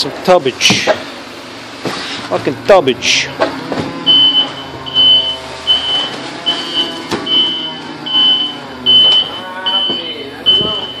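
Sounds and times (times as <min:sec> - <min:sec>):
forklift engine running: 0:00.0 - 0:11.0
reversing alarm beeping: 0:03.9 - 0:11.0.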